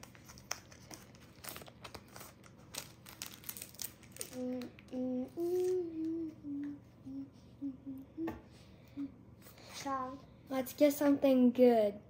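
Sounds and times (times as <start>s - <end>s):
foil pack crinkling: 0.0s - 4.9s
person humming: 4.2s - 9.2s.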